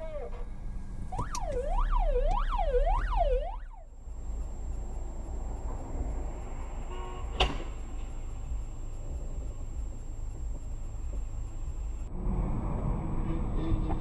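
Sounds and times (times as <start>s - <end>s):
road noise: 0.0s - 14.0s
electronic siren wailing: 1.1s - 3.9s.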